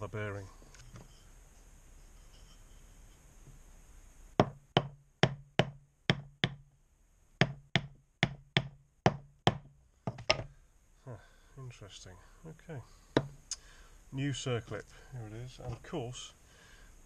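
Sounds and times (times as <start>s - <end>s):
sharp wooden knocks: 4.4s - 6.6s, 7.4s - 10.5s.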